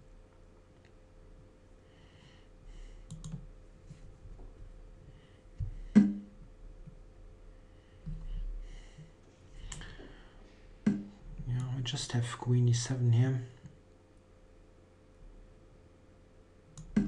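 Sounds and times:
faint steady hum: 0:00.0 - 0:17.0
computer mouse clicks: 0:03.0 - 0:03.4, 0:16.8 - 0:17.0.

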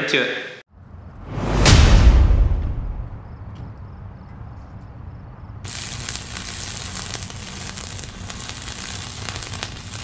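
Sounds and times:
sizzling crackling hiss: 0:05.6 - 0:10.0.

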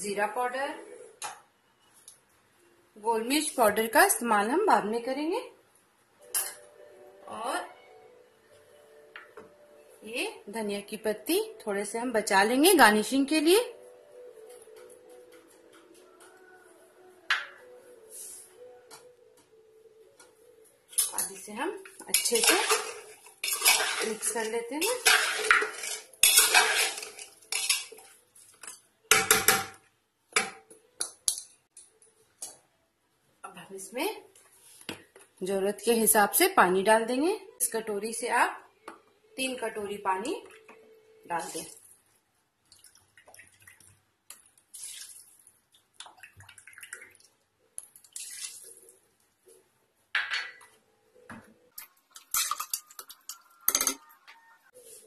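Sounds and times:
metal spoon scraping a pot: 0:21.0 - 0:28.2, 0:52.2 - 0:54.4
water splashing into pot: 0:22.1 - 0:27.9, 0:42.6 - 0:49.0
spoon clinks and knocks: 0:52.2 - 0:54.1.

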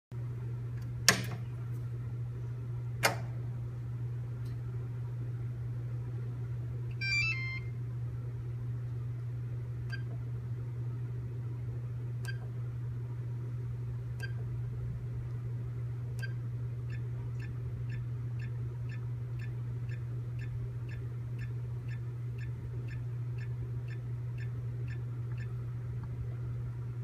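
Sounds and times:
steady low hum: 0:00.2 - 0:27.0
key-press beeps: 0:07.0 - 0:07.7, 0:09.9 - 0:10.1, 0:12.3 - 0:12.5, 0:14.2 - 0:14.4.

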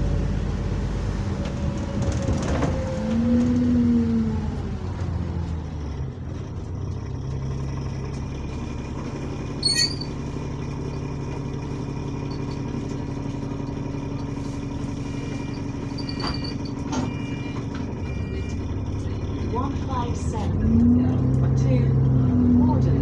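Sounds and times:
bus engine running: 0:00.0 - 0:23.0
sharp ringing clatter: 0:09.6 - 0:11.1, 0:12.1 - 0:14.5, 0:15.3 - 0:17.0.

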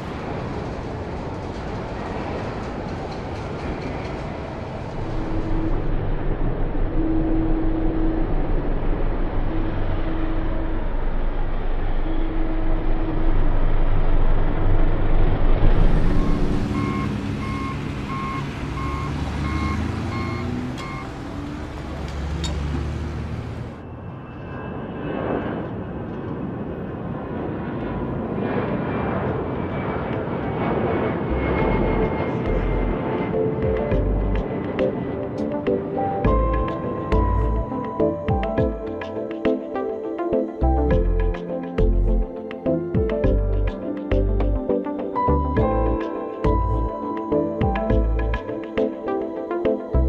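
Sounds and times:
machinery rumble: 0:00.0 - 0:24.4, 0:28.7 - 0:37.8
jet engines running: 0:00.0 - 0:50.0
reversing alarm beeping: 0:15.8 - 0:22.6.

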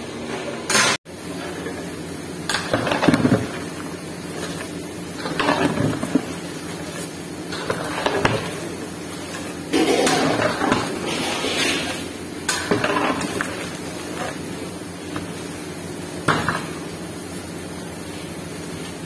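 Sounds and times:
spatula scraping metal pot: 0:04.3 - 0:14.4.

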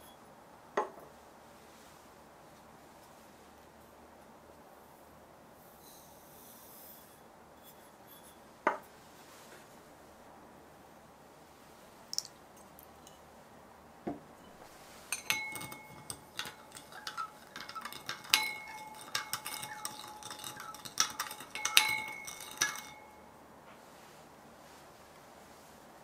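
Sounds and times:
teaspoon stirring in glass bowl: 0:14.4 - 0:23.3.

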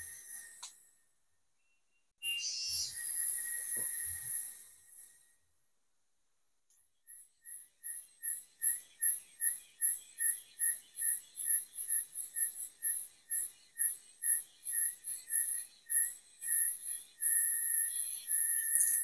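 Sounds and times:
insect calling in high pulses: 0:02.2 - 0:05.2.

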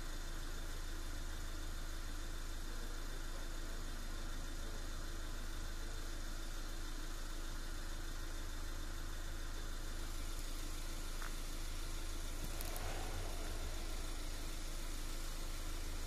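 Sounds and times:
engine idling: 0:00.0 - 0:16.0.

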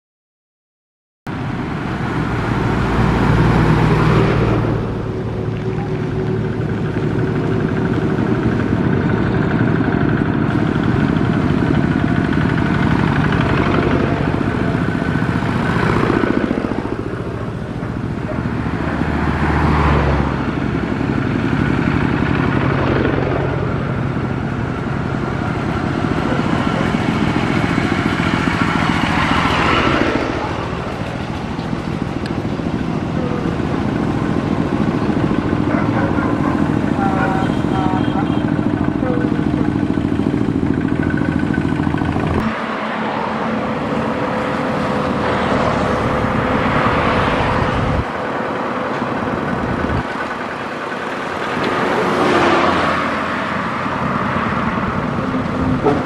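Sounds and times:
tractor engine revving: 0:01.3 - 0:56.0.

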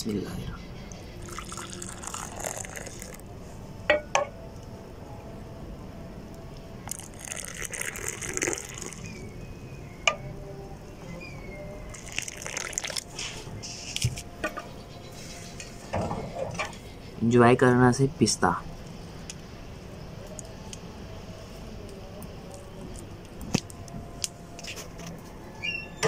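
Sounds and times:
tea pouring into a glass cup: 0:01.2 - 0:03.3, 0:06.8 - 0:09.2, 0:11.9 - 0:13.2.

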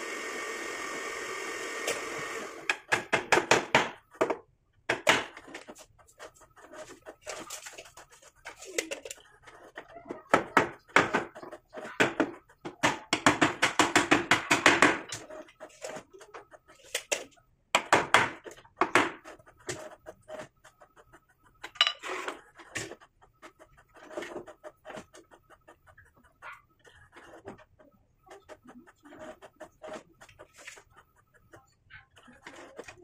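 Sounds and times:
hammer striking wood: 0:02.7 - 0:05.3, 0:12.0 - 0:15.1.

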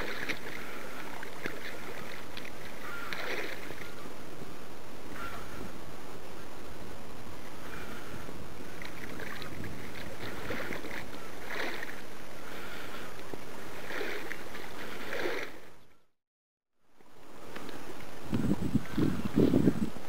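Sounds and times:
water splashing from kicking feet: 0:00.0 - 0:03.9, 0:08.8 - 0:12.1
wind noise on microphone: 0:00.0 - 0:15.5, 0:17.2 - 0:20.0.

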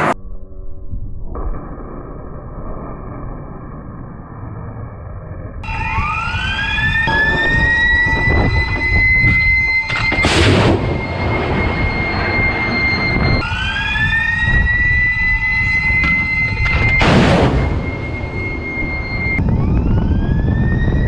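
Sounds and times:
high rising whine: 0:00.0 - 0:21.0
missile launch rushing blast: 0:10.1 - 0:12.2, 0:17.0 - 0:18.6.

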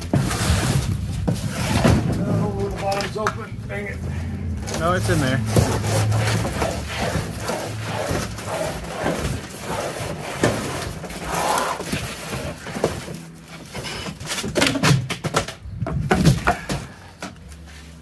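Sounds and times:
cardboard box being dragged: 0:00.0 - 0:02.8, 0:04.1 - 0:14.2.

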